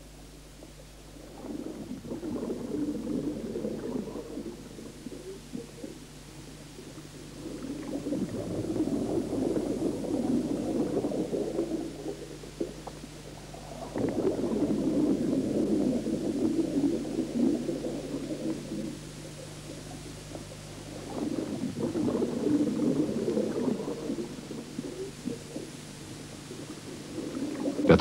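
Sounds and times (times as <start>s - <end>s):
faint low hum: 0.0s - 28.0s
air bubbling from diving regulator: 1.2s - 6.0s, 6.7s - 19.0s, 20.8s - 25.8s.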